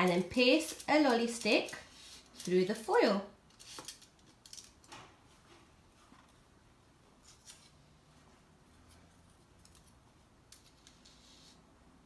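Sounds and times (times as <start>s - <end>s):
faint foil crinkles: 0.0s - 4.7s.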